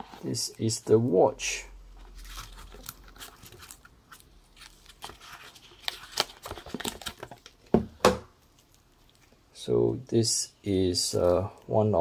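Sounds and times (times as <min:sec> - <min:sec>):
plastic wrap crinkling: 0:02.0 - 0:07.7.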